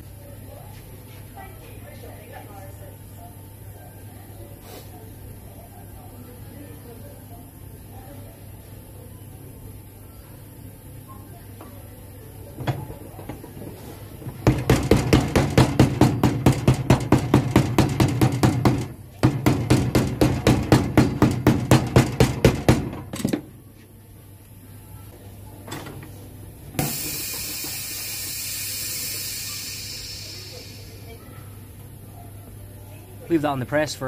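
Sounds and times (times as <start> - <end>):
press hiss of air: 4.6 - 4.9, 26.8 - 31.2.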